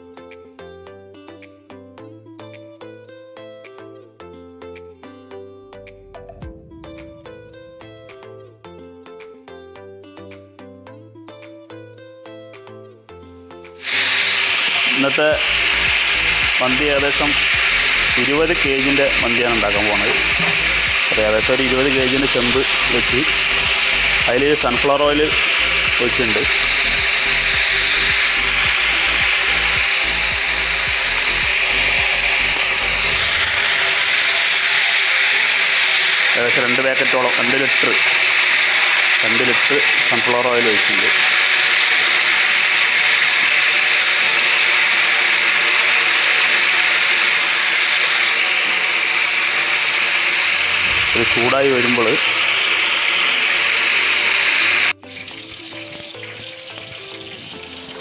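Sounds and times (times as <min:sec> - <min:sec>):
low rhythmic pulse: 0:05.8 - 0:08.5, 0:50.6 - 0:51.5
loud rushing machine noise: 0:13.8 - 0:36.6, 0:37.6 - 0:54.9
oil pot hissing on burner: 0:13.8 - 0:58.0.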